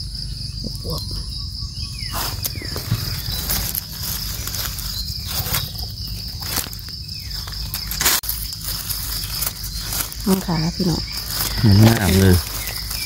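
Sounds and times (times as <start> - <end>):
insects droning: 0.0 - 13.0
footsteps in dry undergrowth: 2.1 - 13.0.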